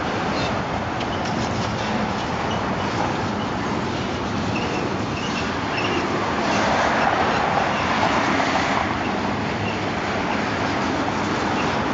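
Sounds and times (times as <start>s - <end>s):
faint wheel squeals: 4.5s - 6.7s.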